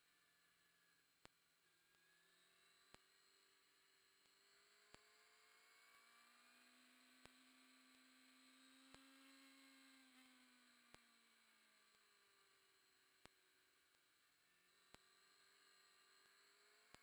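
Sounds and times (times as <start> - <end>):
faint hum and hiss: 0.0 - 17.0
faint clicks: 10.2 - 11.1, 14.7 - 15.2.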